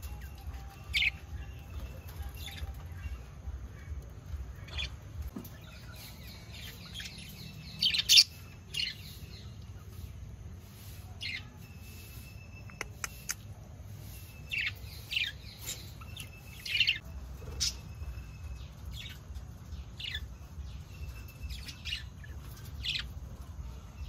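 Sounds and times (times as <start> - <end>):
budgerigars chirping: 3.7 - 10.0.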